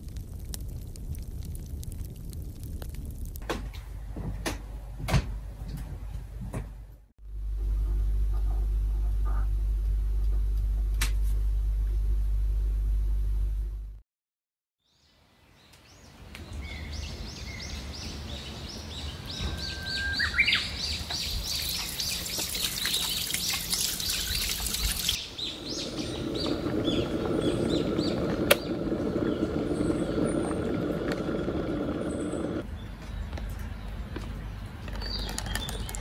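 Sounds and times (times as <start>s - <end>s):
small birds chirping: 14.8s - 36.0s
tap water running over hands: 21.5s - 25.2s
electric kettle heating water: 25.4s - 32.6s.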